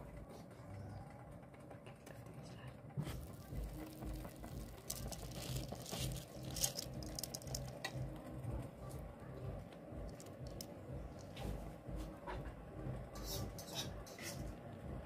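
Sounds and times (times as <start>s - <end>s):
low steady rumble: 2.6s - 13.6s
stew bubbling: 3.0s - 7.9s
rice pattering into liquid: 3.0s - 8.0s.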